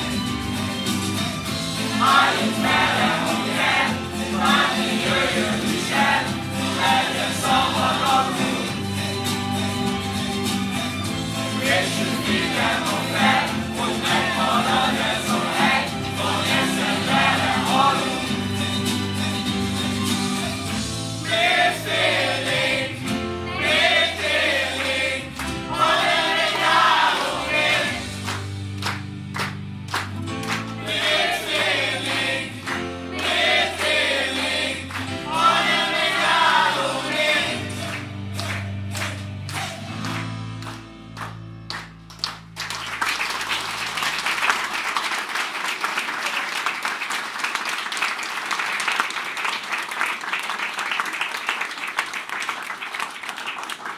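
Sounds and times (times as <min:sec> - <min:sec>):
audience applauding: 0:00.0 - 0:22.8, 0:23.6 - 0:53.9
strummed acoustic guitar: 0:00.0 - 0:41.6
mixed choir singing: 0:01.8 - 0:09.5, 0:11.4 - 0:19.3, 0:21.2 - 0:28.2, 0:30.7 - 0:38.2.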